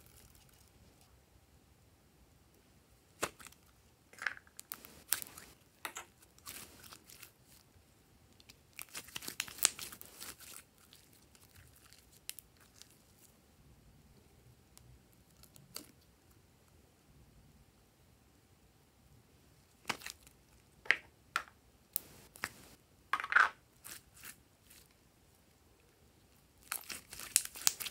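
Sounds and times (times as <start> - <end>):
sticky slime crackling and tearing: 4.6 - 5.5, 8.8 - 13.0, 26.6 - 27.9.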